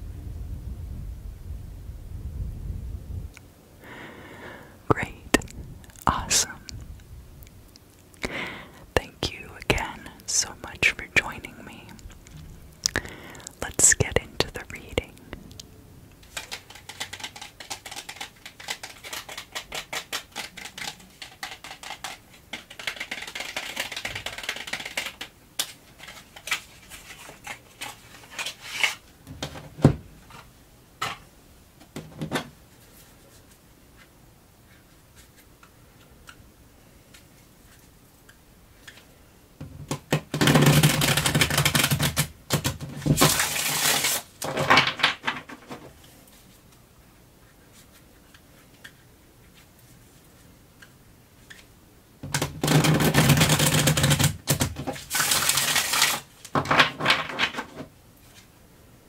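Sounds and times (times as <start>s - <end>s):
cards being shuffled: 16.2s - 29.0s, 39.9s - 46.8s, 52.4s - 58.5s
cards and box clicking and tapping: 16.2s - 29.6s, 39.7s - 45.9s, 52.2s - 57.8s.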